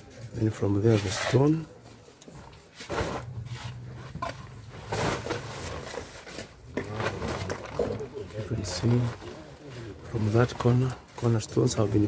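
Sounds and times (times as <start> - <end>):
trowel scraping mortar: 0.8 - 1.7.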